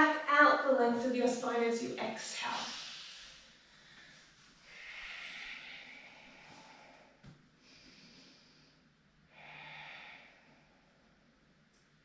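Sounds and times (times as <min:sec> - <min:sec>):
woman breathing slowly: 0:02.5 - 0:11.6.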